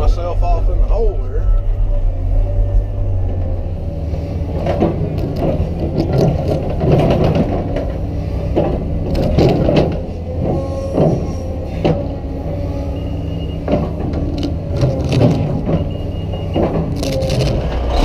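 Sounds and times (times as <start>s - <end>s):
excavator diesel engine running: 0.0s - 18.0s
rock crunching and cracking: 14.2s - 15.9s, 16.9s - 18.0s.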